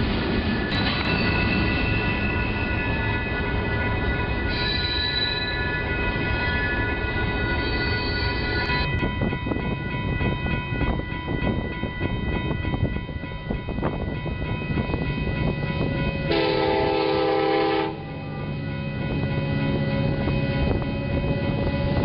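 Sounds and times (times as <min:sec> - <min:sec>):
locomotive horn blast: 0:16.3 - 0:18.4.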